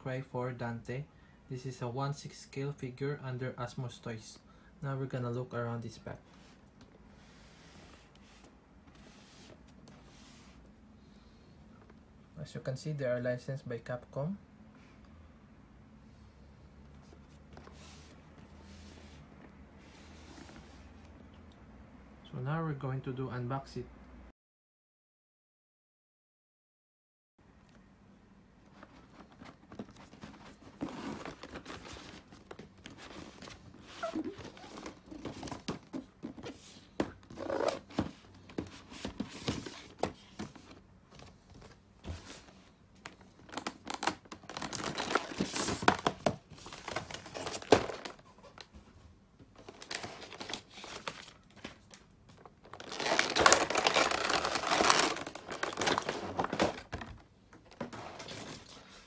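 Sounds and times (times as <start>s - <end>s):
plastic packaging crinkling: 43.1s - 48.7s, 49.6s - 58.4s.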